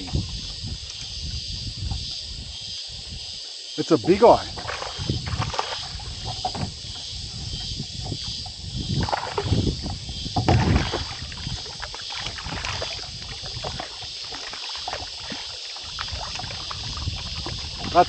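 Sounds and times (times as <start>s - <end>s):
water lapping against plastic hull: 3.9s - 18.0s
low thumps: 4.0s - 11.7s.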